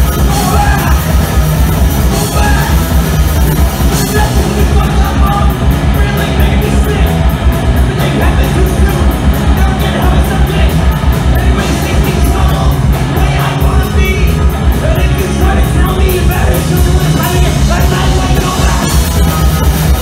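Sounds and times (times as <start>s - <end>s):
person singing and shouting: 0.0s - 1.4s, 2.0s - 3.2s, 3.9s - 7.2s
bass guitar: 0.0s - 20.0s
drum kit with cymbals: 0.0s - 20.0s
electric guitar: 0.0s - 20.0s.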